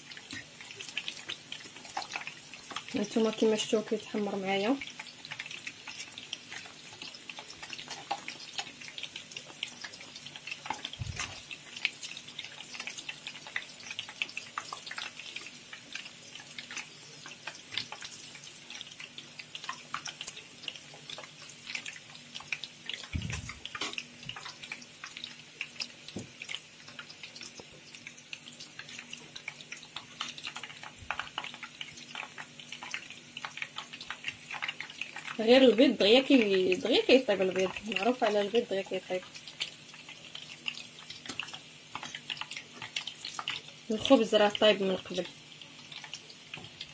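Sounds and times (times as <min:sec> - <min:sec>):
bread sizzling in hot oil: 0:00.0 - 0:46.9
low thumps: 0:23.2 - 0:23.6.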